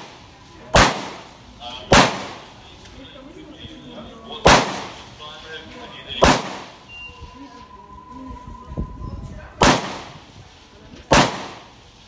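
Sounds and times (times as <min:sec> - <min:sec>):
carbine shots with echo: 0:00.0 - 0:02.6, 0:04.4 - 0:05.1, 0:06.2 - 0:06.9, 0:09.6 - 0:10.2, 0:11.1 - 0:11.8.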